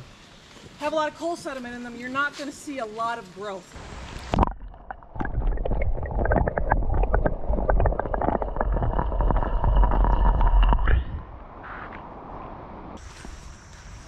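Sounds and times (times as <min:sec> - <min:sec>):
wind on microphone: 0:03.8 - 0:11.9.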